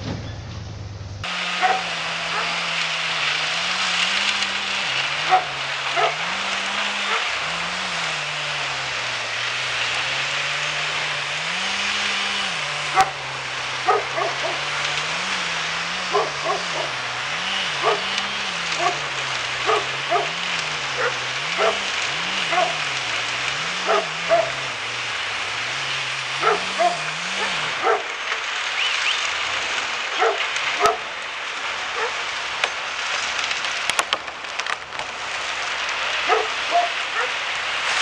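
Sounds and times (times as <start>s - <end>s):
wood chipper engine running: 0.0s - 38.0s
dog barking: 1.6s - 2.7s, 5.2s - 7.4s, 12.9s - 13.2s, 13.8s - 15.1s, 16.0s - 17.0s, 17.7s - 23.0s, 23.6s - 24.7s, 26.4s - 28.2s, 30.1s - 31.1s, 32.0s - 32.2s, 36.2s - 37.4s.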